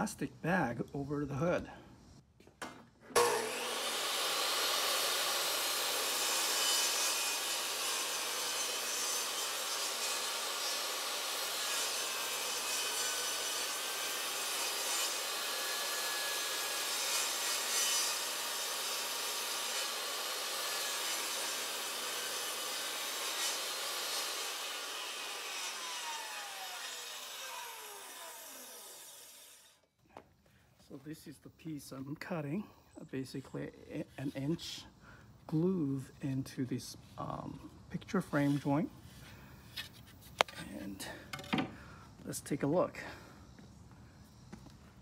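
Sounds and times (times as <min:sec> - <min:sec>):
table saw cutting wood: 0:03.1 - 0:29.8.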